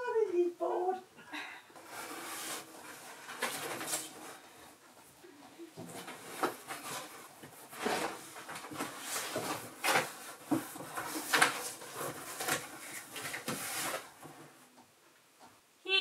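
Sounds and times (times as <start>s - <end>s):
cardboard box rustling and scraping: 1.8s - 4.4s, 5.8s - 14.2s.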